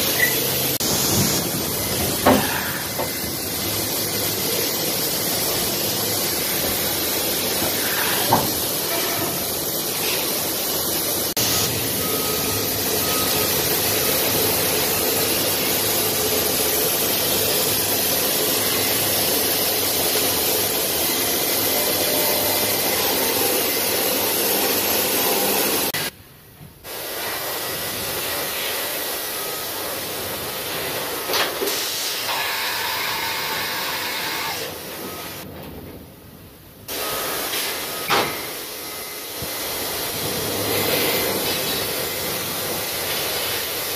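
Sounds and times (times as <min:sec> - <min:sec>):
coolant spraying hiss: 0:31.1 - 0:33.4.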